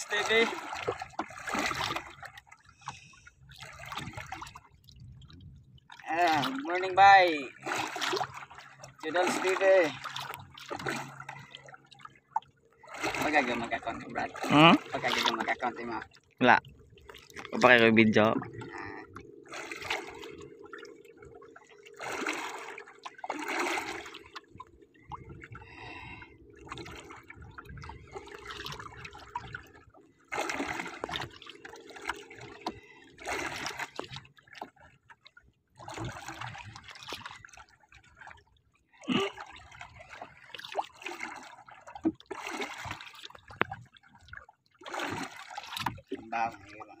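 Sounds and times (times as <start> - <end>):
water splashing against boat hull: 0.0 - 47.0.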